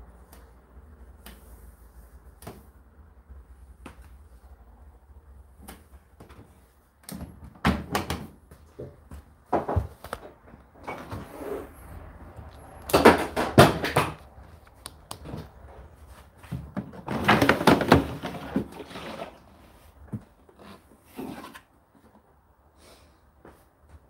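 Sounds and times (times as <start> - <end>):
plastic container clunking and rattling: 16.6 - 19.4.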